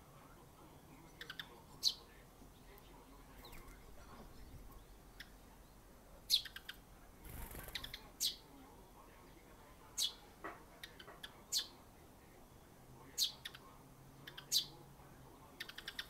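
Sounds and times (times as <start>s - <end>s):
sparrows chirping: 0.0s - 16.0s.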